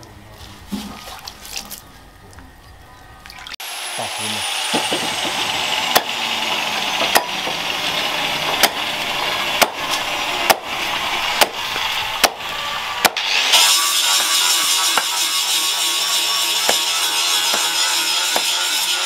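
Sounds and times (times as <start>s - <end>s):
knife chopping wood: 4.6s - 7.8s, 8.5s - 10.7s, 11.3s - 13.4s, 15.0s - 15.2s, 16.6s - 16.9s, 17.5s - 18.7s.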